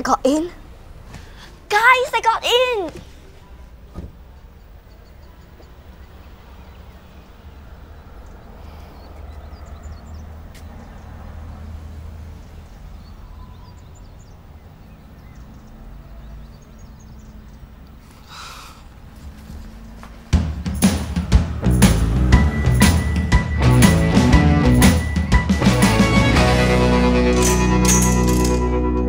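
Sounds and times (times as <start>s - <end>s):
faint bird chirps: 3.2s - 11.1s, 12.9s - 19.0s
music with drums: 20.3s - 28.7s.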